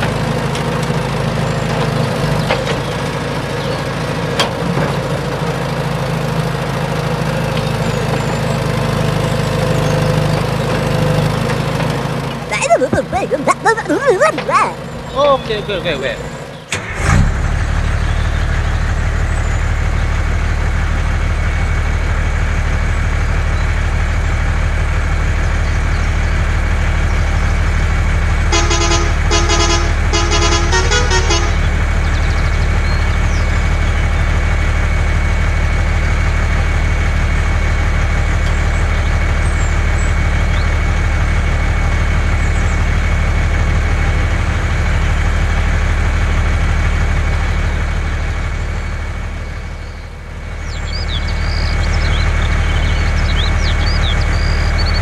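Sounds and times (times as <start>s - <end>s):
truck engine humming: 0.0s - 55.0s
horn honking: 28.4s - 32.0s.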